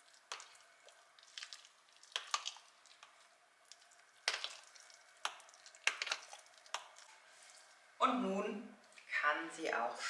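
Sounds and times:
squishing and scraping food: 0.0 - 7.9.

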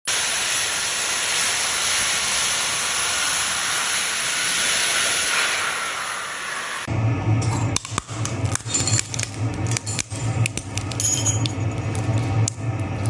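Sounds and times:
small jet turbines hissing: 0.1 - 6.9.

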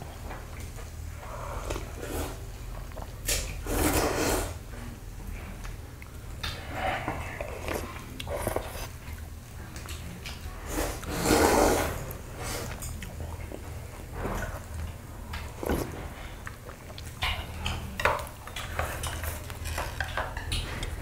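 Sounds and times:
noodles being slurped: 1.3 - 4.6, 10.6 - 17.2.

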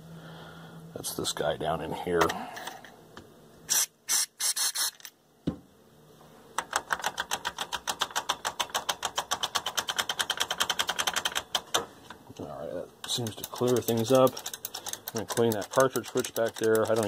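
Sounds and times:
switch clicking rapidly: 13.1 - 17.0.

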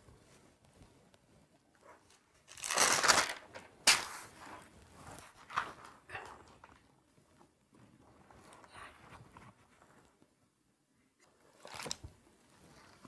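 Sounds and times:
album pages turning: 1.8 - 6.9, 11.6 - 12.2
tissue paper crinkling: 2.0 - 6.0
sharp paper snap: 2.5 - 4.3.

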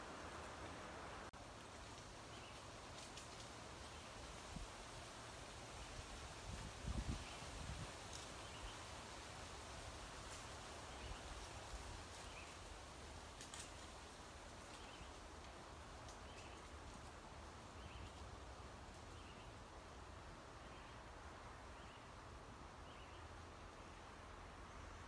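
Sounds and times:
wind through trees: 0.0 - 25.0
wind rumble on microphone: 6.0 - 8.2.

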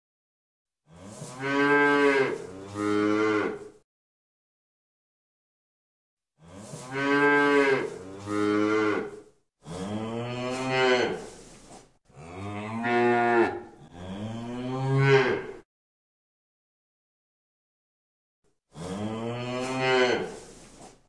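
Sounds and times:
cow mooing: 0.9 - 3.7, 6.4 - 11.3, 12.1 - 15.6, 18.8 - 20.4.

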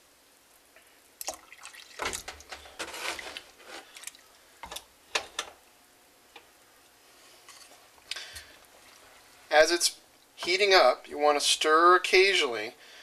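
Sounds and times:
spoon stirring wet cabbage: 1.3 - 4.9.

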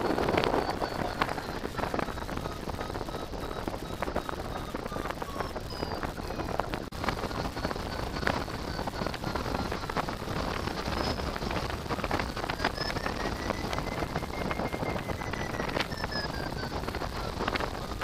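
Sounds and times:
short electronic beeps: 0.0 - 18.0
wind buffeting microphone: 0.0 - 18.0.

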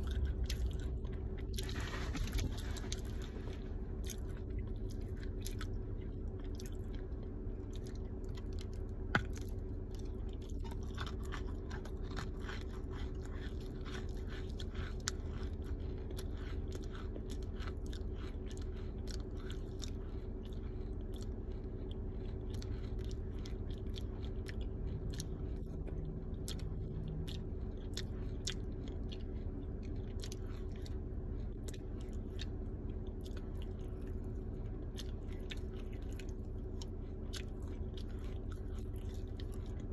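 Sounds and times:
clay ball crunching: 0.0 - 7.4, 8.1 - 20.0
low hum: 0.0 - 39.9.

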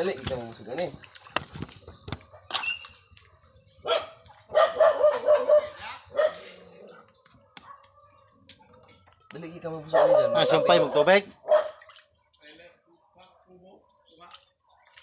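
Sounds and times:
dog barking: 3.9 - 8.8, 9.9 - 11.8.

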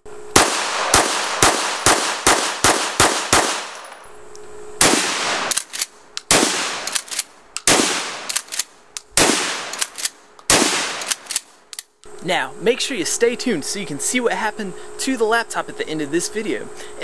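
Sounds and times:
shotgun firing: 0.3 - 3.8, 4.8 - 8.6, 9.2 - 11.4
pistol firing rapidly: 0.4 - 3.8, 4.8 - 8.6, 9.2 - 11.4.

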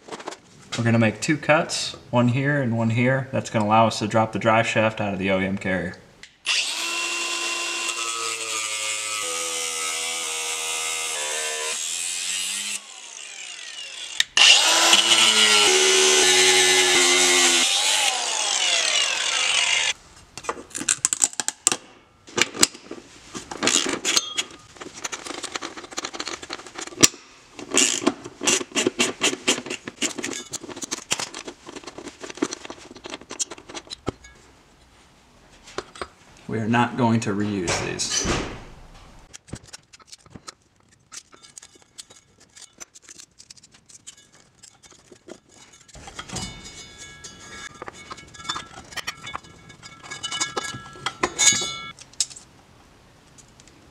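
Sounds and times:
power tool cutting metal: 6.4 - 20.0.

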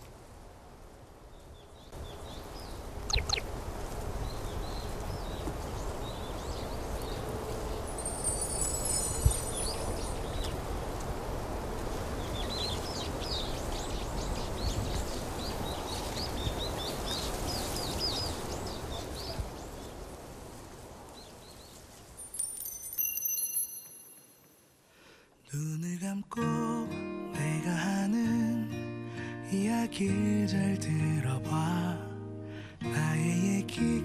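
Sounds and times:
small birds twittering: 1.3 - 10.6, 12.2 - 20.0
high ringing tones: 7.9 - 10.3, 22.2 - 24.8.

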